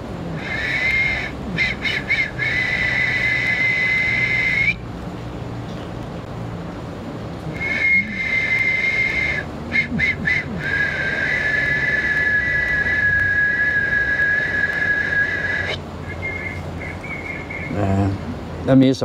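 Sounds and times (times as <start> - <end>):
man whistling high note: 0.4 - 4.8, 7.5 - 17.9.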